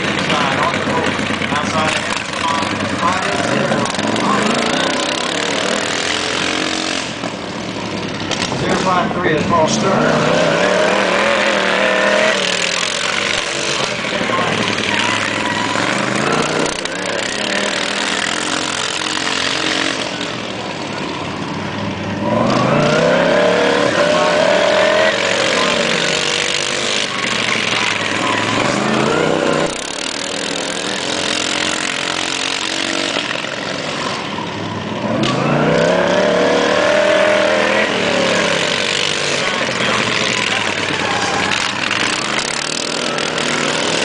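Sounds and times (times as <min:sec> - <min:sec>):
lawn mower engines revving: 0:00.0 - 0:44.0.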